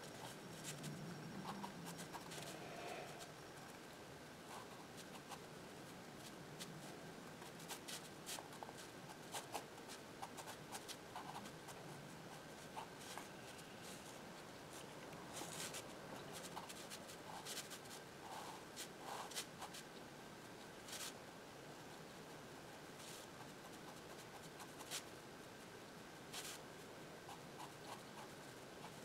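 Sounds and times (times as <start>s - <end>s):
pen scratching on paper: 7.6s - 11.8s.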